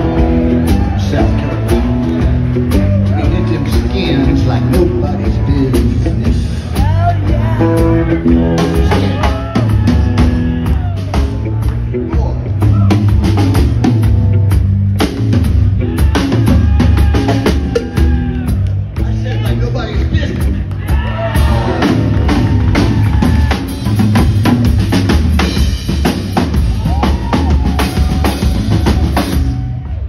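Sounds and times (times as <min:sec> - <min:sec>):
electric guitar lead: 0:00.0 - 0:18.7
drums driving beat: 0:00.0 - 0:30.0
rock band playing boogie: 0:00.0 - 0:30.0.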